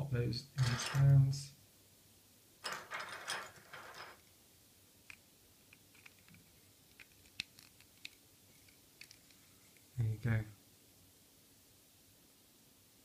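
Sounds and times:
plastic toy parts clattering: 0.6s - 1.3s, 2.6s - 4.2s
small plastic clicks: 5.1s - 9.9s.

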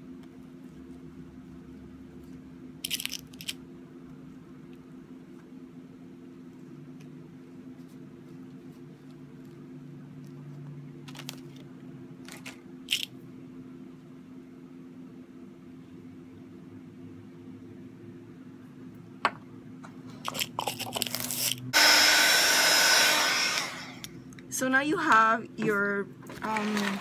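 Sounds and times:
low steady hum: 0.0s - 27.0s
hot-air blower: 21.4s - 24.2s.

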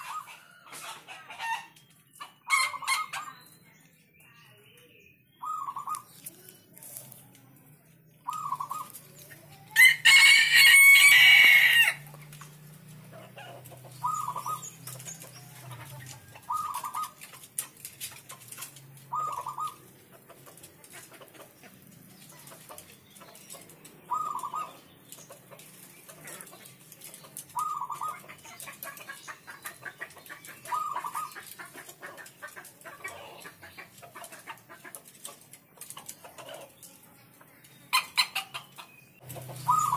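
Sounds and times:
dove cooing: 0.0s - 1.6s, 5.4s - 6.4s, 8.3s - 11.9s, 13.1s - 17.5s, 18.2s - 19.8s, 22.3s - 24.8s, 26.0s - 34.0s, 39.4s - 39.9s
loud bird call: 14.0s - 14.7s, 19.1s - 19.8s, 24.1s - 24.8s, 39.6s - 39.9s.

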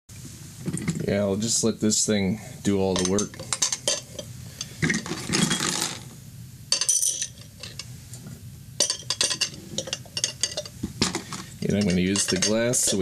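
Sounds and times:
metal parts clinking on glass: 3.0s - 4.2s, 4.9s - 6.0s, 6.7s - 7.8s, 8.8s - 13.0s
metal parts clattering: 4.8s - 6.0s, 6.7s - 7.8s, 8.8s - 13.0s.

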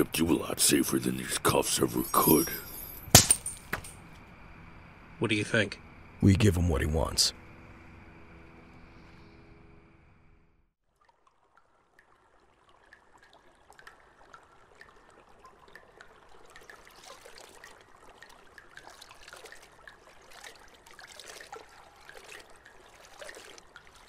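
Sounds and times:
water trickling: 0.0s - 3.6s, 10.8s - 24.0s
small water drips: 10.8s - 24.0s.

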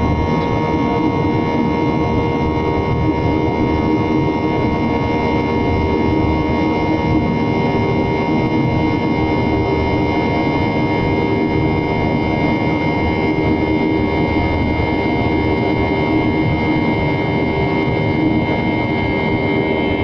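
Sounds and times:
engine whine: 0.0s - 20.0s.

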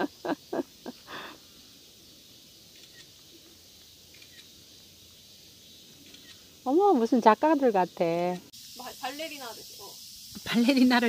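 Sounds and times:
faint outdoor hiss: 0.0s - 11.0s.

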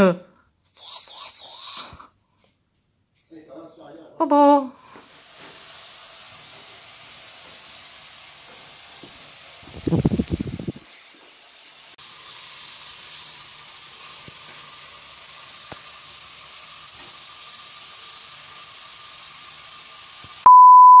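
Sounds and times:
steady hiss: 4.7s - 20.4s
electronic beep: 20.5s - 21.0s.

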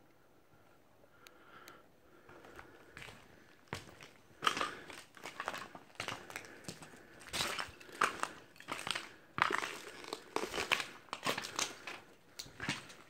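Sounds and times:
footsteps crunching over debris: 2.2s - 13.0s.

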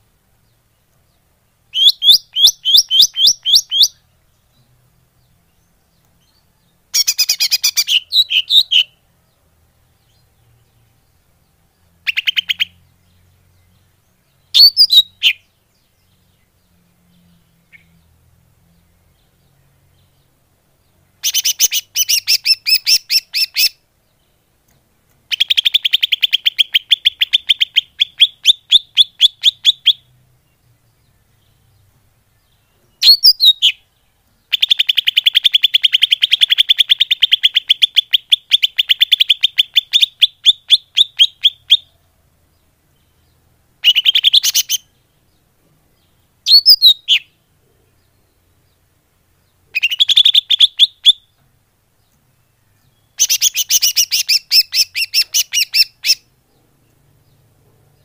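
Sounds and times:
bird rapid sharp chirps: 1.7s - 4.0s, 7.0s - 9.0s, 12.0s - 12.9s, 14.5s - 15.5s, 21.2s - 23.8s, 25.3s - 30.1s, 33.0s - 33.8s, 34.5s - 42.0s, 43.8s - 45.0s, 46.4s - 47.4s, 49.7s - 51.4s, 53.0s - 56.7s.

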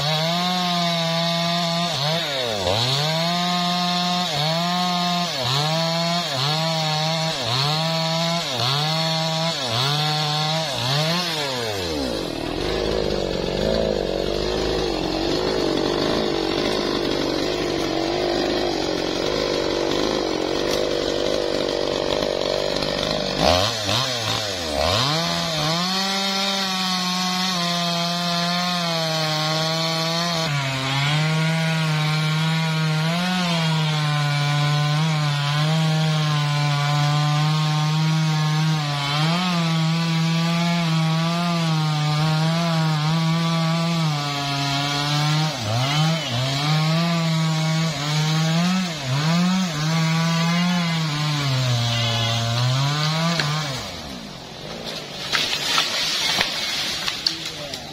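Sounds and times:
chainsaw cutting through wood: 0.0s - 57.9s.

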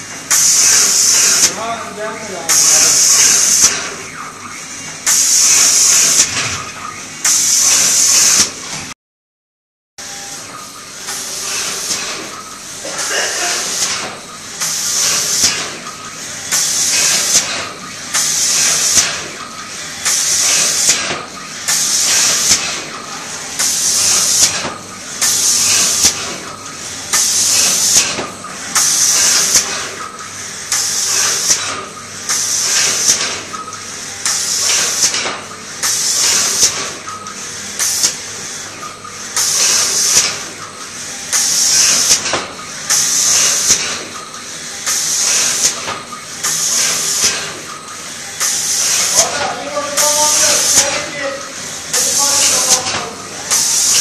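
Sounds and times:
low machine noise: 10.0s - 54.0s
spray guns hissing: 44.9s - 54.0s.

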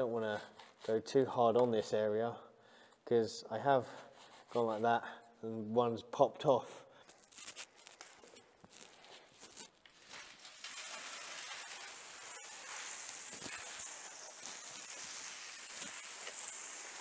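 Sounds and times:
hose nozzle spraying water: 8.7s - 17.0s.

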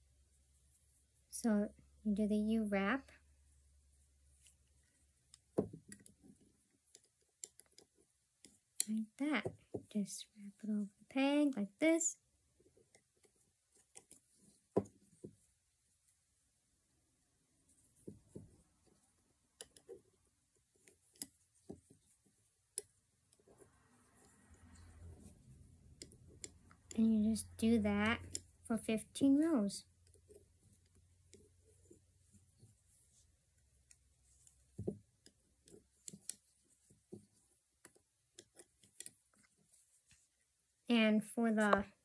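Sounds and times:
knitting loom hook clicking: 4.4s - 9.6s, 12.7s - 15.0s, 18.2s - 22.1s, 22.7s - 27.0s, 28.0s - 28.7s, 30.0s - 40.2s
loom hook clicking on plastic pegs: 6.9s - 9.0s.

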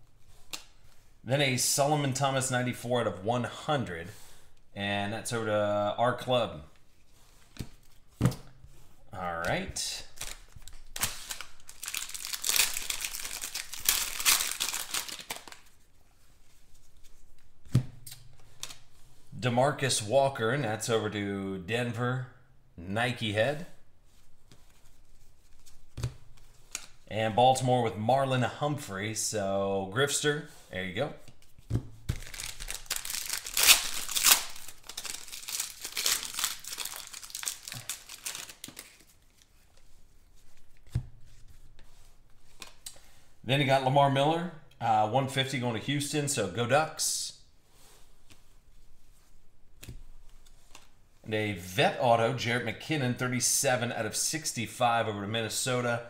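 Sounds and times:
handling of cards: 6.7s - 19.3s, 24.1s - 27.1s, 31.2s - 43.1s, 47.8s - 51.3s
foil wrapper tearing and crinkling: 10.2s - 15.7s, 32.2s - 39.5s.

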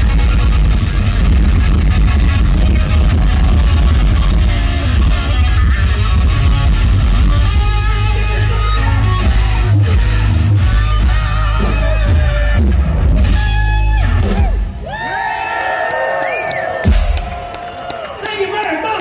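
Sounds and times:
electric guitar lead: 0.0s - 14.8s
bass guitar: 0.0s - 15.1s
drums: 0.0s - 19.0s.

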